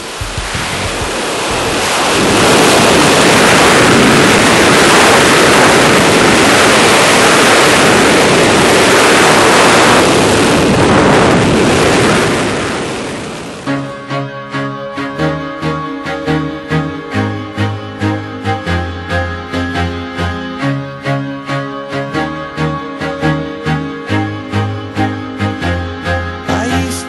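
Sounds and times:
wind buffeting microphone: 0.0s - 13.7s.

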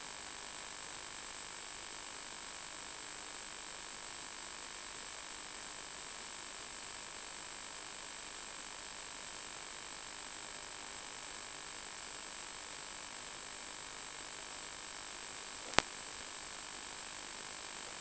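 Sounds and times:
static hiss: 15.4s - 16.2s.

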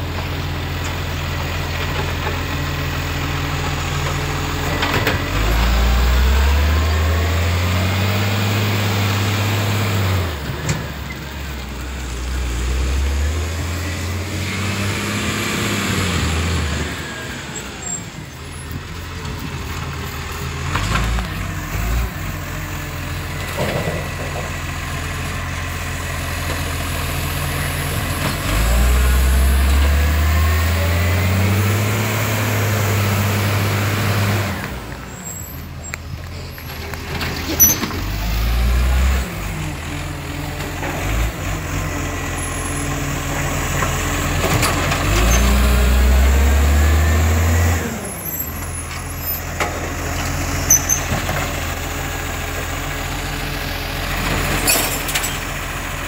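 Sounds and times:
diesel engine idling and revving: 0.0s - 56.0s.

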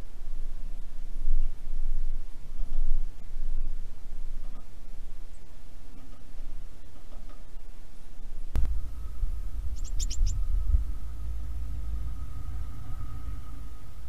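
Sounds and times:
wind buffeting microphone: 8.5s - 14.0s
bird chirping: 8.6s - 14.0s.

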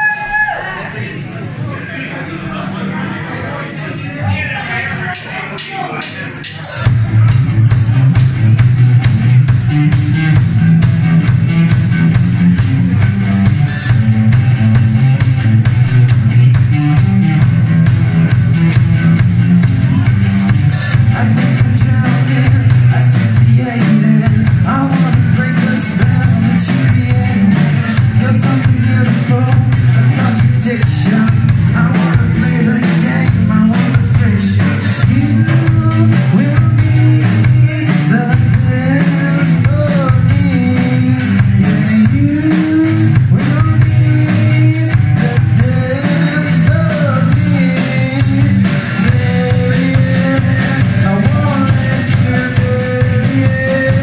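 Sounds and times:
drum kit: 5.1s - 54.0s
electric guitar: 6.8s - 54.0s
young man singing: 19.9s - 54.0s.

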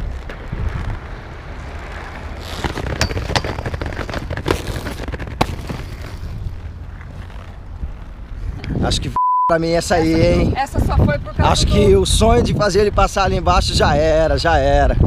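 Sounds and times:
wind on microphone: 0.0s - 1.7s, 9.9s - 15.0s
skate clacks and knocks: 0.0s - 8.4s
skate wheels rolling on pavement: 0.0s - 9.1s, 9.8s - 15.0s.

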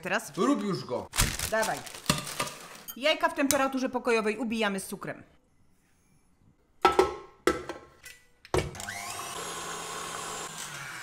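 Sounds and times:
stand mixer motor whine: 8.7s - 11.0s.

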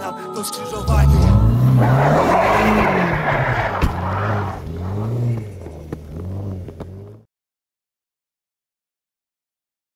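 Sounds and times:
car engine revving: 0.8s - 7.2s
tyres rushing on snow: 0.8s - 7.2s.

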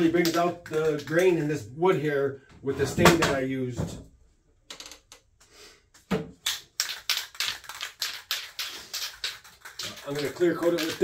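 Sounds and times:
spray can mixing ball rattling: 6.4s - 11.0s.

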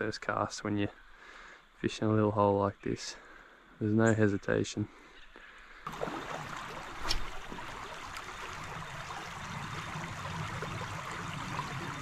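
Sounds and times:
creek trickling: 5.8s - 12.0s.

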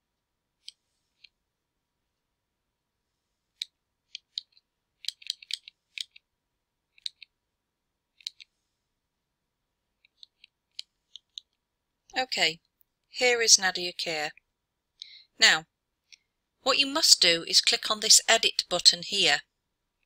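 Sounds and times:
computer mouse clicking: 0.6s - 1.4s, 3.6s - 6.3s, 6.9s - 7.3s, 8.2s - 8.5s, 10.0s - 11.6s.

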